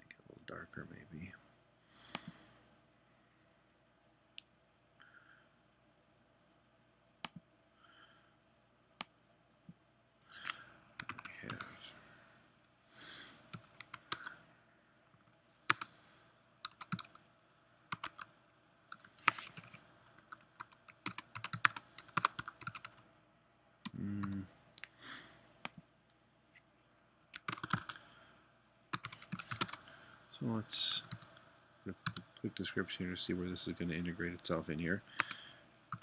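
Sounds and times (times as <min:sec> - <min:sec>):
keyboard typing clicks: 0:10.4 - 0:11.6, 0:16.7 - 0:17.2, 0:18.9 - 0:23.0, 0:27.4 - 0:28.0, 0:29.0 - 0:29.8.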